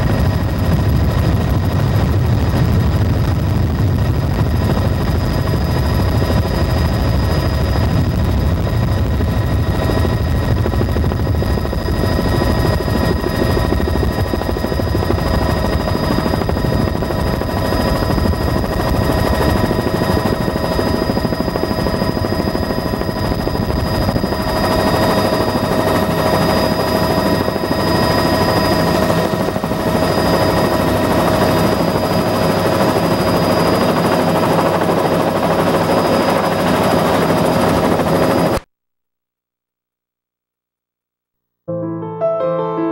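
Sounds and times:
engine whine: 0:00.0 - 0:32.2
aircraft engine drone: 0:00.0 - 0:38.6.

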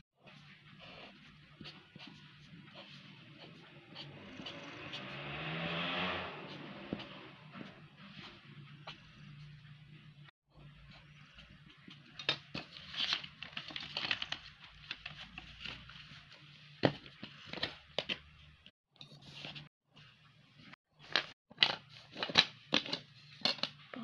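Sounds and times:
marker pen scratching paper: 0:00.2 - 0:05.5
paper and card handled: 0:11.0 - 0:18.3.

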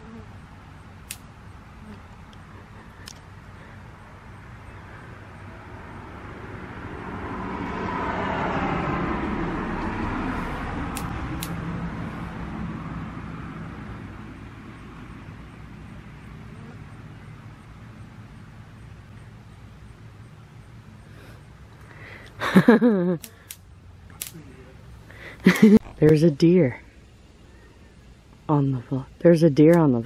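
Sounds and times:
vehicle passing by: 0:03.5 - 0:21.7.

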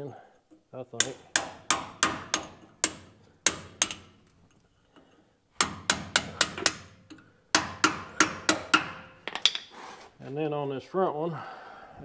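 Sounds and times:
hammer striking metal chisel: 0:01.0 - 0:04.3, 0:05.6 - 0:09.7.

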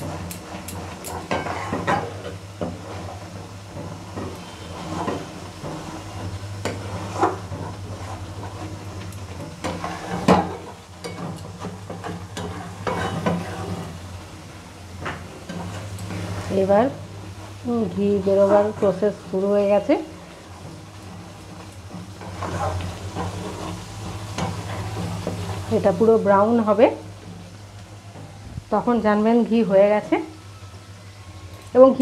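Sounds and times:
spatula scraping a pan: 0:00.0 - 0:14.0, 0:15.0 - 0:17.6, 0:18.2 - 0:26.6
low sizzle: 0:00.0 - 0:32.0.

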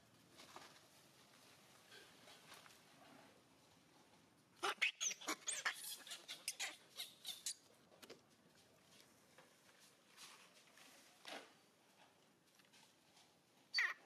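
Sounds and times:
animal squeaks and chirps: 0:04.6 - 0:07.6, 0:13.7 - 0:14.0.

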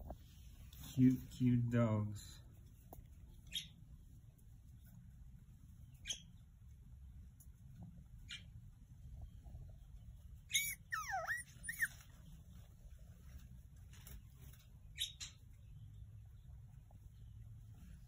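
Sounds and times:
puppies whimpering: 0:10.5 - 0:12.1
puppies squeaking: 0:10.5 - 0:12.2.

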